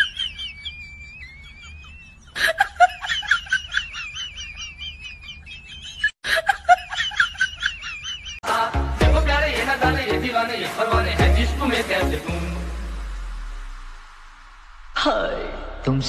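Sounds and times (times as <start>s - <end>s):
high-pitched cackling: 0.0s - 6.1s.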